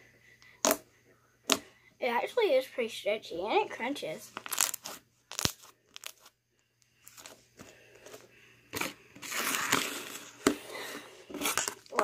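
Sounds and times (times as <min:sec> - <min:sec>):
slime crunching and crackling: 0:04.4 - 0:06.3.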